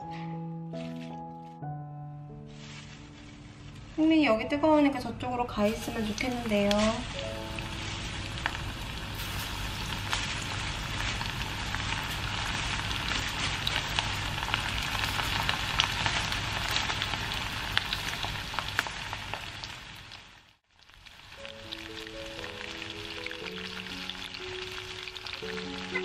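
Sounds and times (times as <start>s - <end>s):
chicken deep-frying in hot oil: 5.4s - 26.0s.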